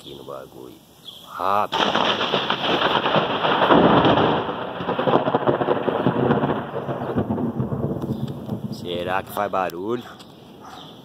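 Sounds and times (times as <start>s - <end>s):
thunder rumbling: 1.7s - 9.8s.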